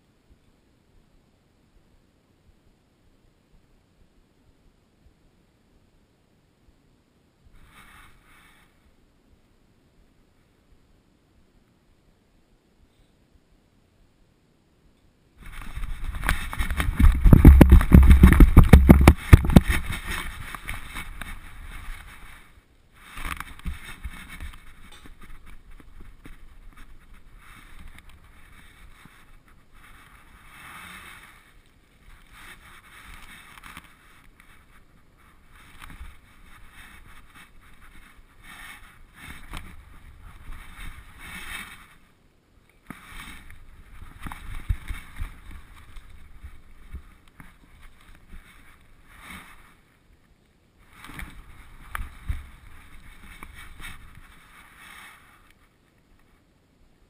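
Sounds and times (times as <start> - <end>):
camera rubbing and rustling: 7.6 - 8.8, 15.4 - 42.2, 42.8 - 50.0, 50.8 - 56.5.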